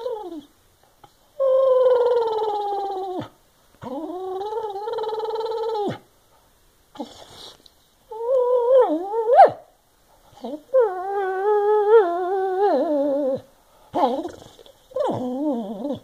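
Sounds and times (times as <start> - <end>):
dog whining: 0.0 - 0.5, 1.4 - 6.0, 8.1 - 9.6, 10.3 - 16.0.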